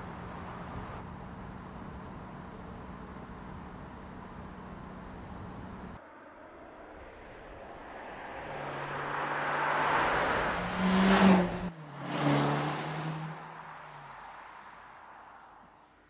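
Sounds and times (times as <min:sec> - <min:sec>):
car engine passing by: 0:06.0 - 0:15.8.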